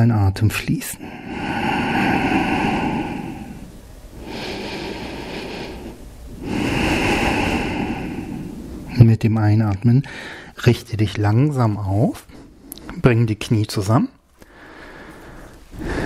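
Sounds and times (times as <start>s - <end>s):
man breathing deeply: 1.0s - 8.9s, 10.1s - 10.6s, 14.4s - 16.0s.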